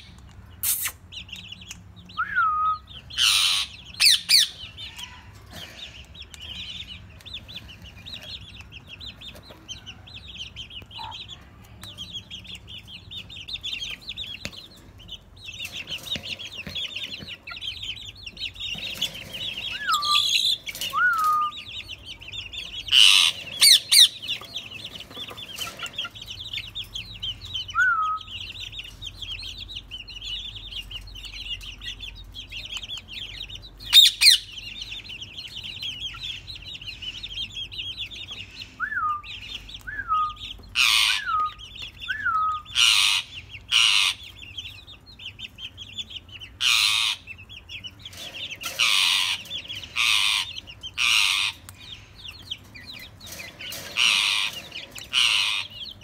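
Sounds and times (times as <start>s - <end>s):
small birds twittering: 0.0s - 56.0s
whistled bird notes: 2.2s - 2.9s, 20.9s - 21.7s, 27.7s - 28.4s, 38.6s - 40.5s, 41.1s - 42.7s
parakeets squawking: 2.8s - 56.0s.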